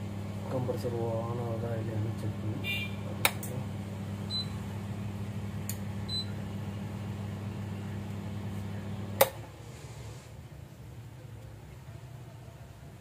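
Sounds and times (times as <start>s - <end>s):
electrical mains hum: 0.0s - 13.0s
sharp click: 9.2s - 9.4s.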